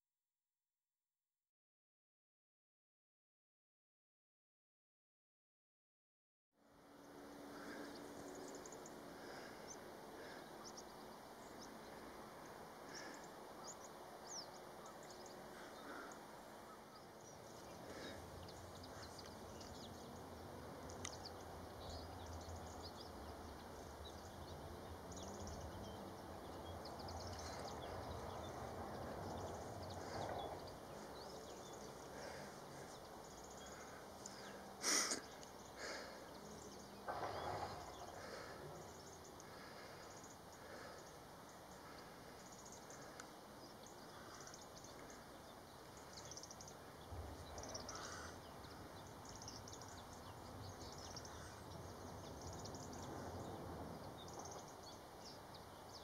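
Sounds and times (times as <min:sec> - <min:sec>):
distant bird chirps: 0:06.9 - 0:56.0.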